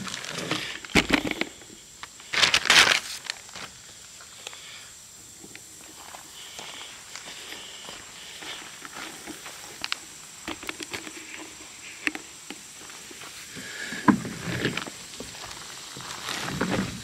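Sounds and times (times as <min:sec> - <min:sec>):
footsteps on leaf litter: 0:02.2 - 0:03.8, 0:14.5 - 0:17.0.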